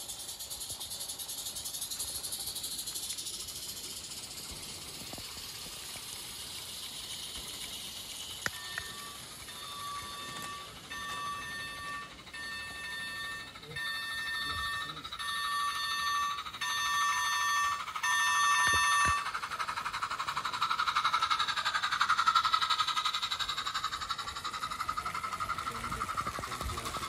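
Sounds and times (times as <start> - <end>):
model train running past: 0.0 - 27.0
model train whistle toots: 8.4 - 19.4.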